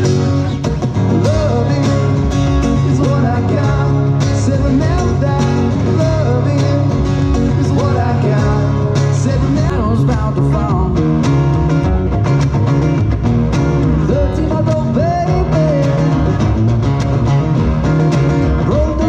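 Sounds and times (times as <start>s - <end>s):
bass line: 0.0s - 19.0s
second guitar: 0.0s - 19.0s
strummed acoustic guitar: 0.0s - 19.0s
person singing: 0.9s - 11.2s, 13.9s - 16.6s, 18.4s - 19.0s.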